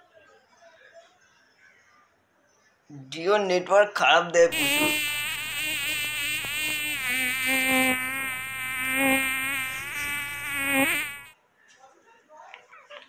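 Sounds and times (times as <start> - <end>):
buzzing drone: 4.5 - 11.3.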